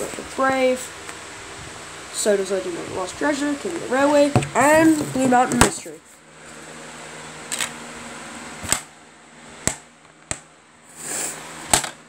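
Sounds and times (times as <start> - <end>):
faint steady hum: 0.0 - 12.0
plastic case clicks and knocks: 4.4 - 5.8.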